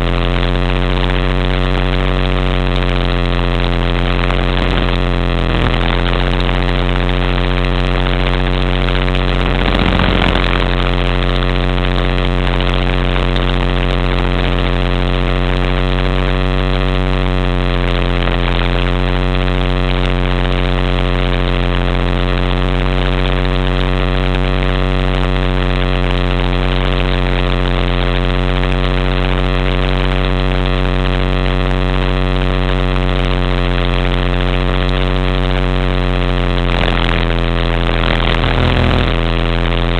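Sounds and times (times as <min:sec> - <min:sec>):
rc helicopter drone: 0:00.0 - 0:13.0, 0:36.4 - 0:39.9.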